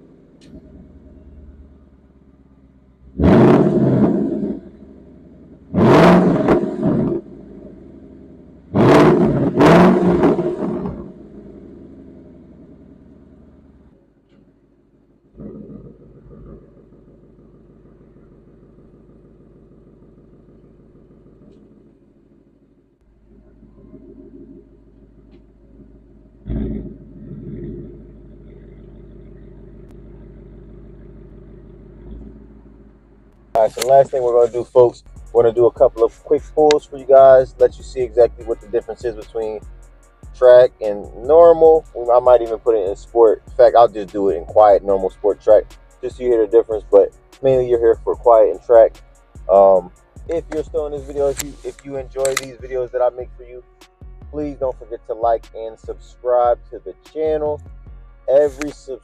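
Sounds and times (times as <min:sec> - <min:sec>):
car engine revving and idling: 0:00.0 - 0:59.0.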